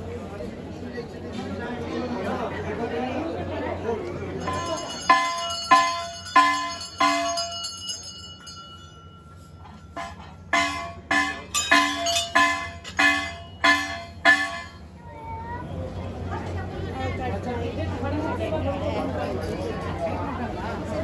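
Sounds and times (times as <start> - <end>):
brass bell clanging: 4.4 - 14.9.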